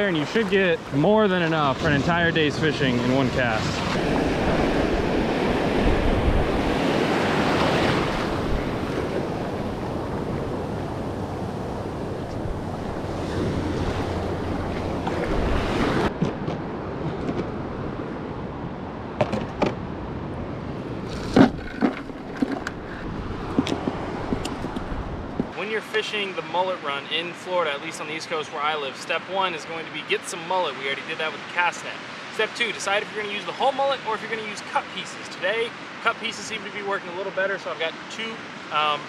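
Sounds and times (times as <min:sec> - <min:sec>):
surf breaking: 0:00.0 - 0:16.5
wind on microphone: 0:01.8 - 0:18.8, 0:20.8 - 0:25.6.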